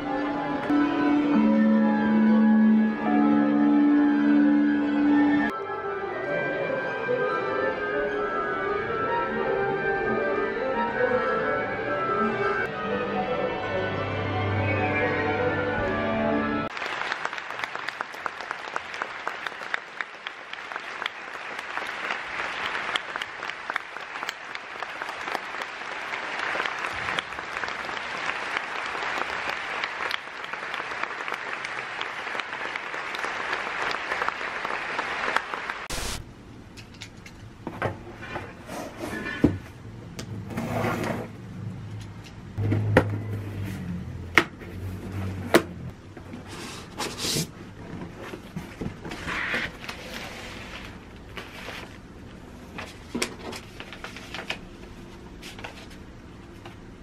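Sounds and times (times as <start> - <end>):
audience applauding: 16.7 - 35.9.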